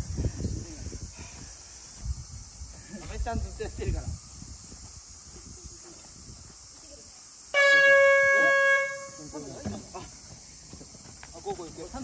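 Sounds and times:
loud horn blast: 0:07.5 - 0:09.2.

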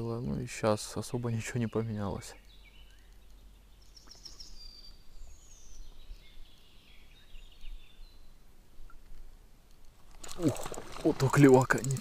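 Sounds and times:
birds chirping and whistling: 0:01.5 - 0:08.3.

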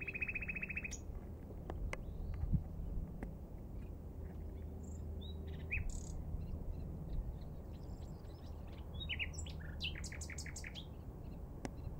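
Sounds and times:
nightingale singing: 0:00.0 - 0:01.1, 0:04.6 - 0:11.9.

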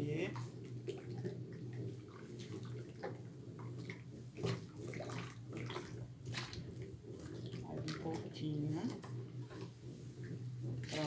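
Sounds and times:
steady low hum: 0:00.0 - 0:11.0
thick soap sloshing: 0:00.0 - 0:11.0
spatula scraping basin: 0:04.2 - 0:11.0.

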